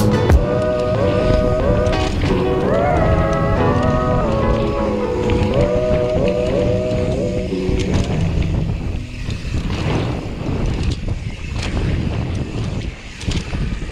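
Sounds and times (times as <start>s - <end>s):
background music: 0.0s - 9.3s
wind rushing over microphone: 0.0s - 13.9s
bike tyres rolling on dirt: 0.1s - 13.9s
bike knocking and rattling: 7.5s - 13.9s.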